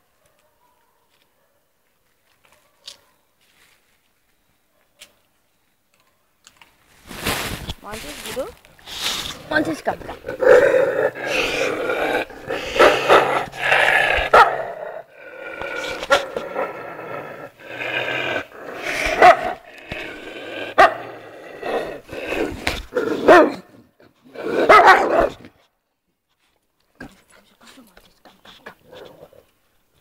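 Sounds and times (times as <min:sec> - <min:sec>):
puppies growling and barking: 0:09.0 - 0:23.8.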